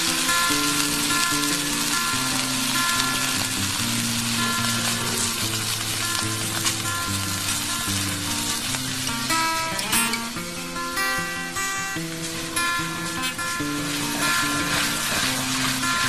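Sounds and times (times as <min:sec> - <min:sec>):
steak sizzling in frying pan: 0:00.0 - 0:16.0.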